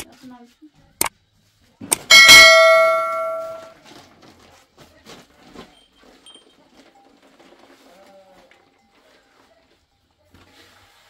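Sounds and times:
knocks and shuffling of utensils: 0:01.8 - 0:10.8
struck metal object ringing: 0:02.1 - 0:03.8.

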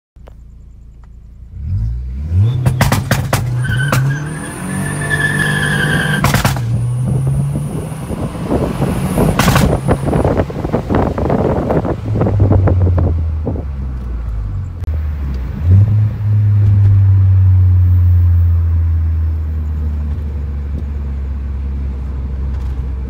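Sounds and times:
turbocharged car engine revving: 0:01.4 - 0:13.7
exhaust pops and bangs: 0:02.6 - 0:04.2, 0:06.1 - 0:07.2, 0:09.2 - 0:10.4.

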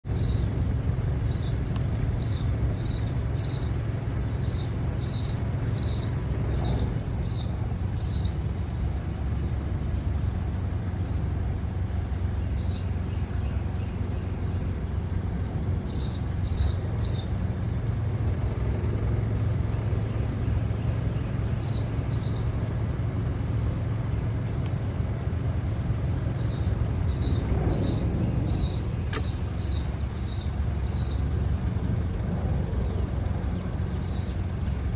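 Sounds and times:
low traffic rumble: 0:00.0 - 0:34.9
bird chip notes: 0:26.4 - 0:31.2.

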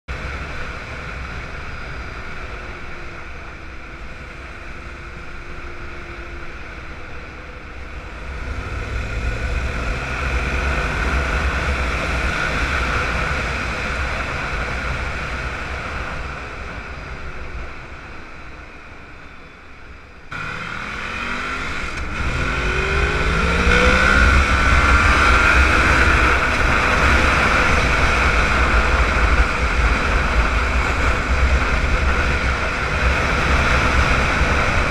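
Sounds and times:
motorcycle engine under way: 0:20.3 - 0:34.9
wind rumble on microphone: 0:21.1 - 0:34.9.

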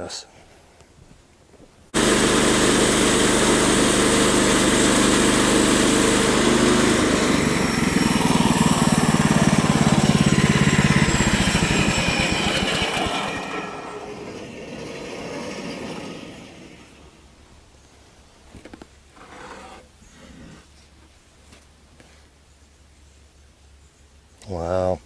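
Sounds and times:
saw blade cutting wood: 0:02.0 - 0:17.0, 0:19.2 - 0:19.9
bandsaw mill engine running: 0:02.0 - 0:17.4.

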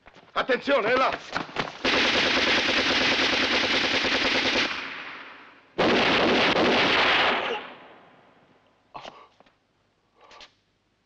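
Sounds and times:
automatic gunfire bursts: 0:01.8 - 0:05.0, 0:05.8 - 0:07.6.

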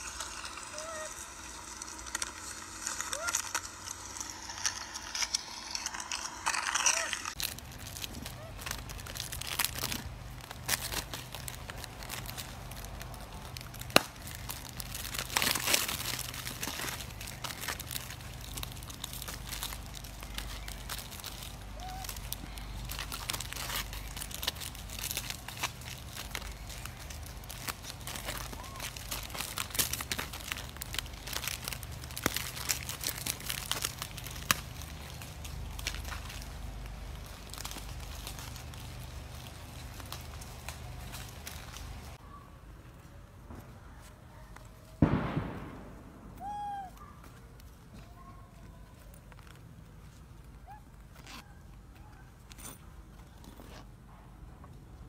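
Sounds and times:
plastic wrappers crinkling and tearing: 0:00.0 - 0:42.2, 0:46.4 - 0:53.8.

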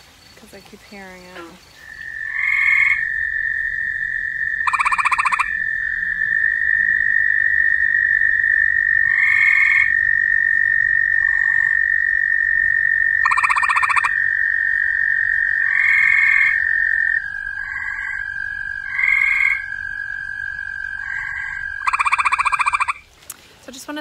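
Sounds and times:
treefrog trilling: 0:01.2 - 0:23.1
high-pitched ringing tone: 0:04.6 - 0:06.2, 0:13.2 - 0:14.2, 0:21.8 - 0:23.0.

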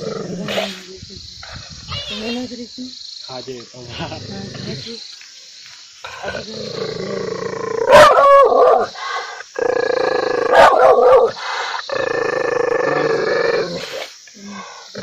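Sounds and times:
dog snarling barks: 0:07.8 - 0:08.9, 0:10.4 - 0:11.3.

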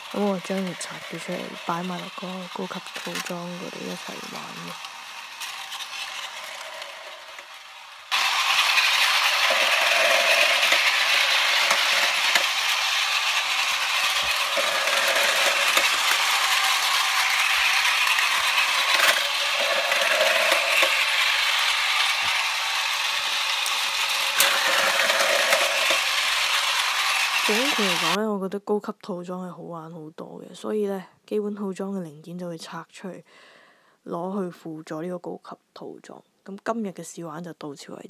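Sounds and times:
toy train gearbox whirring: 0:00.0 - 0:28.2
toy train wheels rattling: 0:00.0 - 0:28.2.

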